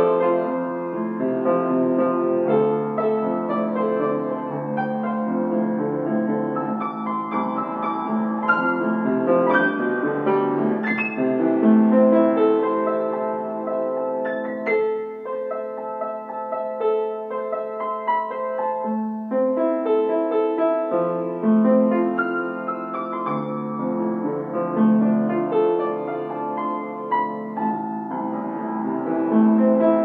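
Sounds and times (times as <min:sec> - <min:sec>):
solo piano music: 0:00.0 - 0:30.0.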